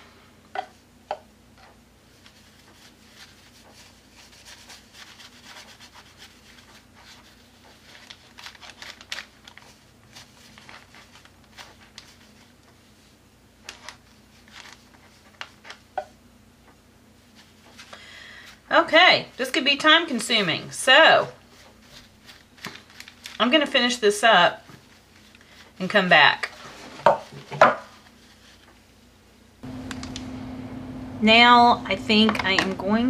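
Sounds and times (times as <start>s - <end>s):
brush scratching on paper: 2.1s - 8.1s.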